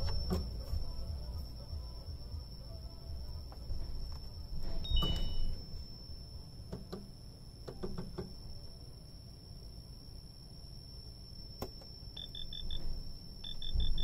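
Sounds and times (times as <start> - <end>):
faint high whine: 0.0 - 14.0
two-tone beep: 4.8 - 5.6, 13.4 - 14.0.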